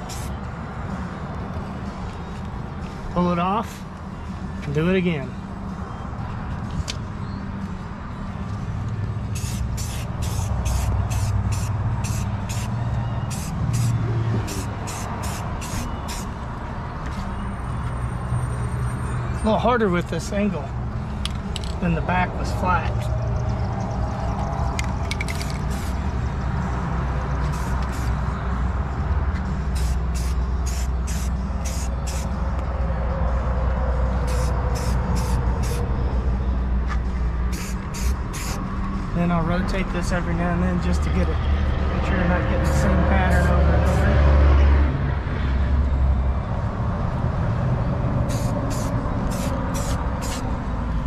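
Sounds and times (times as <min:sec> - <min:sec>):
spray can hissing: 0:00.0 - 0:00.3, 0:09.3 - 0:12.7, 0:13.3 - 0:16.3, 0:25.6 - 0:25.9, 0:27.5 - 0:28.1, 0:29.8 - 0:32.3, 0:34.2 - 0:35.8, 0:37.5 - 0:38.6, 0:48.3 - 0:50.4.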